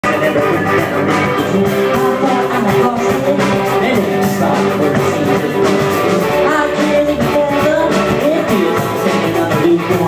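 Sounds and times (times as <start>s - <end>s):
drum kit: 0.0s - 10.0s
electric bass: 0.0s - 10.0s
electric guitar: 0.0s - 10.0s.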